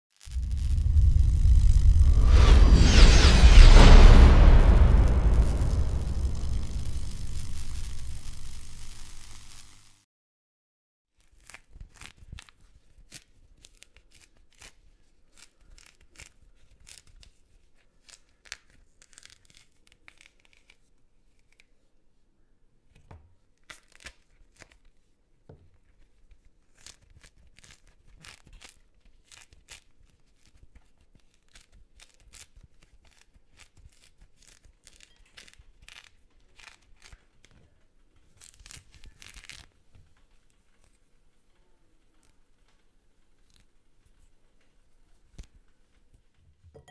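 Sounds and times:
mandarin rind tearing: 38.4 - 39.7.

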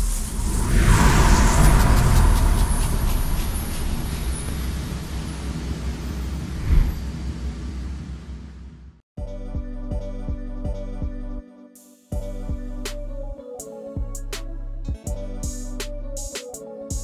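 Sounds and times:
deep rushing rumble: 0.0 - 8.1.

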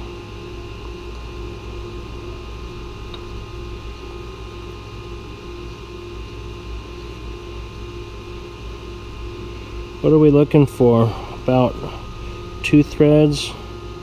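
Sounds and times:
machinery hum and whir: 0.0 - 14.0
faint pulsing tone: 8.3 - 14.0.

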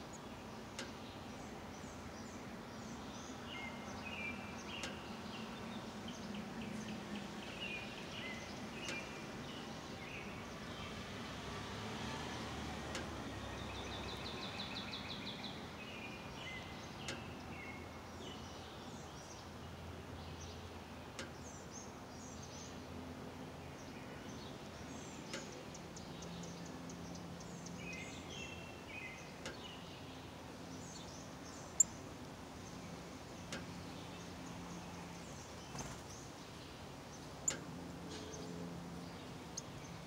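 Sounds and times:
birds singing and chirping: 0.0 - 11.0, 12.9 - 40.0
steady background hiss: 0.0 - 40.0
faint ticks: 0.7 - 1.0, 4.7 - 5.1, 8.4 - 9.2, 12.8 - 13.2, 17.0 - 17.3, 21.1 - 21.4, 25.3 - 27.8, 29.4 - 29.6, 33.4 - 33.8, 37.4 - 38.4.

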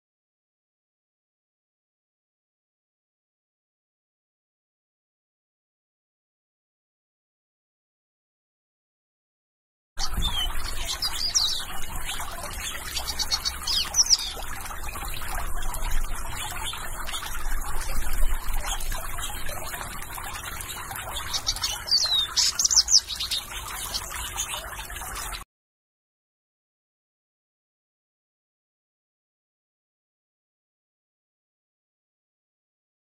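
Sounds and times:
high bird chirps: 10.0 - 25.4
water trickling in a fountain: 10.0 - 25.4.

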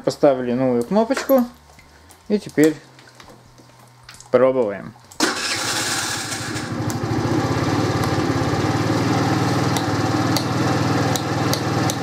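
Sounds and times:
scooter engine idling: 5.6 - 12.0.

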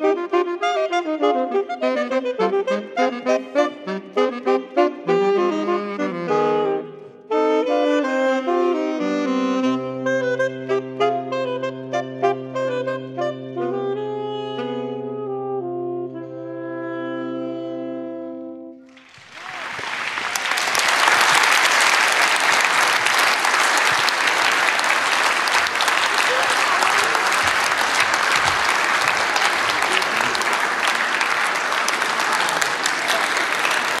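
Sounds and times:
audience applause: 18.9 - 34.0.

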